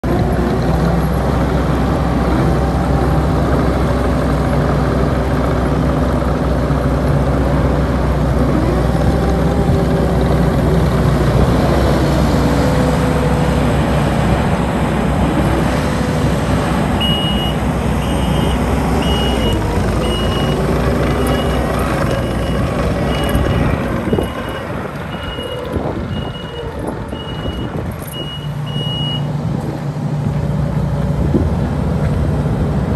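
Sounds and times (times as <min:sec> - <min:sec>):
diesel engine running: 0:00.0 - 0:32.9
backup alarm beeping: 0:17.0 - 0:20.6, 0:22.2 - 0:29.3.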